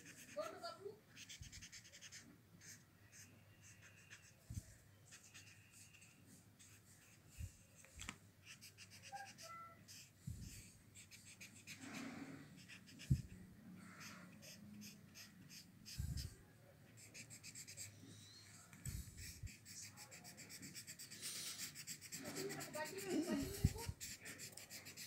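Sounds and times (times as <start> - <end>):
blending stump rubbing on paper: 19.0 - 25.0.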